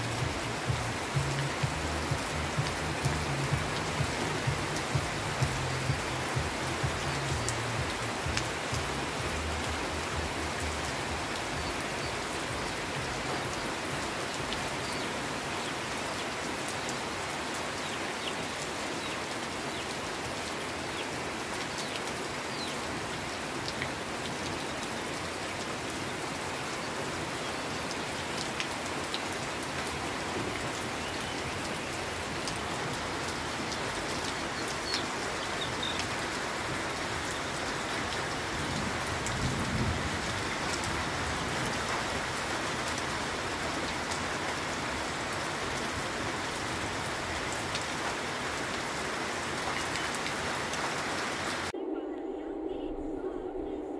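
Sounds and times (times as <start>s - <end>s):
heavy rain on leaves: 0.0s - 51.7s
low rumble: 51.8s - 53.9s.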